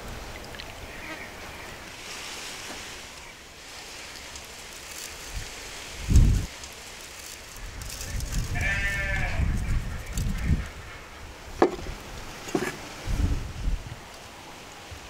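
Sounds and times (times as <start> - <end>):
farm animal bleating: 8.0 - 9.6.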